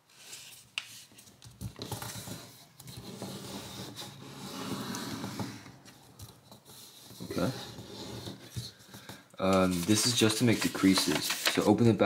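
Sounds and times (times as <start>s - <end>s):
paper rustling being folded: 9.4s - 12.0s.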